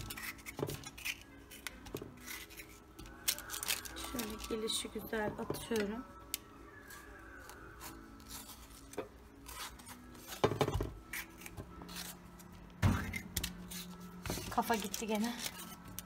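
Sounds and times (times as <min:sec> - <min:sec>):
knife cutting a tomato: 0:00.0 - 0:03.8, 0:06.9 - 0:12.2
parchment paper rustling: 0:00.0 - 0:05.0, 0:13.7 - 0:16.0.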